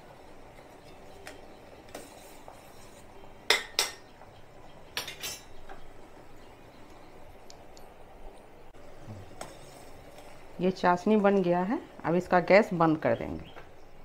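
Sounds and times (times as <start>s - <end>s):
metal spoon clinking against pan: 5.0s - 5.6s.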